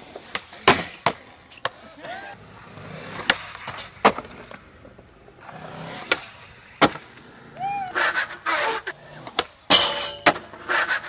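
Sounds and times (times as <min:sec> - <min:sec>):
skateboard clacks popping and landing: 0:00.0 - 0:02.2, 0:03.1 - 0:05.1, 0:06.0 - 0:07.3, 0:07.9 - 0:11.0
skateboard wheels rolling on concrete: 0:00.0 - 0:11.0.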